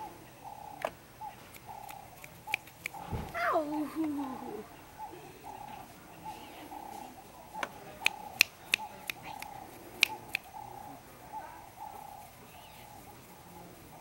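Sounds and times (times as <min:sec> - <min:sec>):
sharp clicks: 0:00.8 - 0:03.4, 0:07.6 - 0:10.6.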